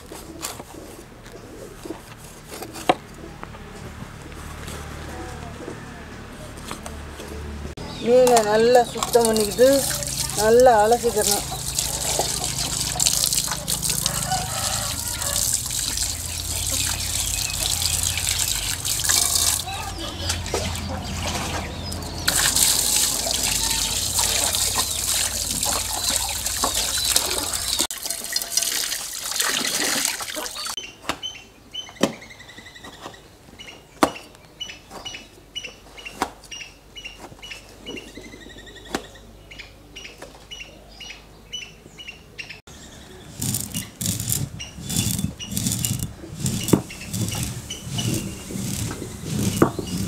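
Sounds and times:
stone roller grinding peppercorns: 8.0 - 20.5, 21.4 - 28.8, 42.7 - 50.0
water pouring and splashing: 8.2 - 30.8, 43.3 - 50.0.

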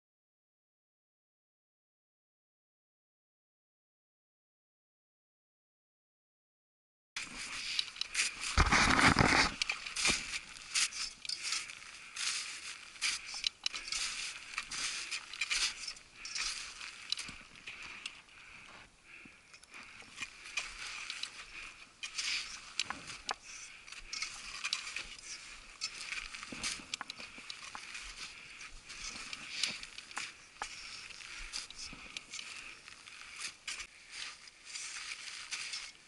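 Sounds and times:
crampon footsteps crunching snow: 7.2 - 36.0.

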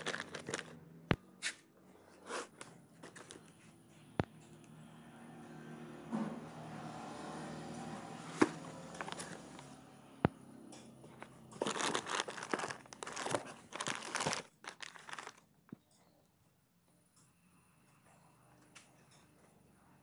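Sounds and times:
plastic wrapping crinkling: 0.0 - 0.8, 8.7 - 9.8, 11.1 - 15.5.

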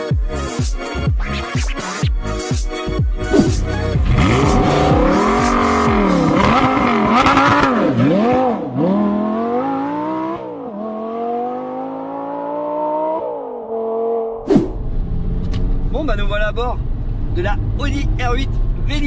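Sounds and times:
gear change: 3.2 - 8.5
sports car engine revving: 3.2 - 15.9.

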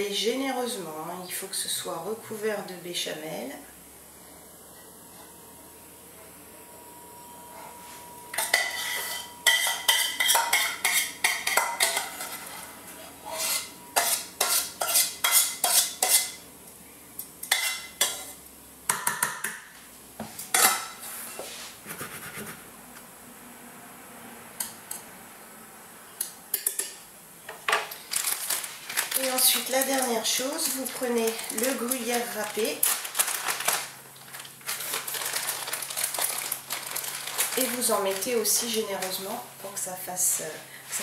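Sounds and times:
saucepan clinking and scraping: 8.3 - 16.4.

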